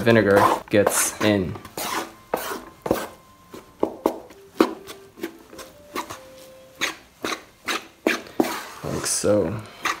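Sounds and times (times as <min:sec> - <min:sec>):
rice paddle scraping wooden tub: 0:00.0 - 0:03.1, 0:06.8 - 0:10.0.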